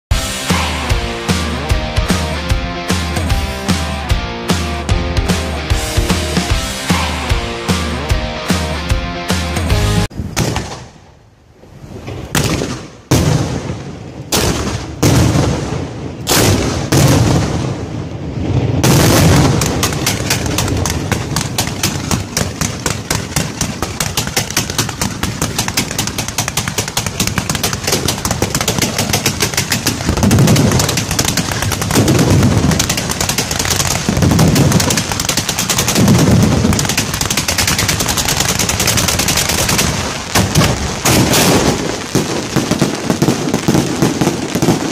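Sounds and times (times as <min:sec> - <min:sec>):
rapid fireworks barrage: 0:00.1 - 0:08.7, 0:11.6 - 0:44.9
fireworks sharp bangs: 0:11.8 - 0:44.9
deep firework thumps: 0:18.8 - 0:44.8.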